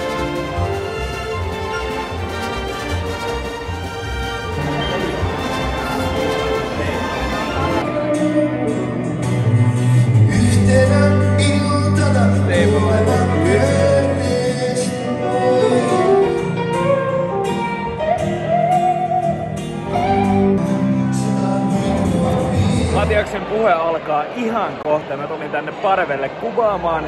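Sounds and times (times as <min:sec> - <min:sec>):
person singing: 0:07.8 - 0:17.3, 0:19.9 - 0:23.1.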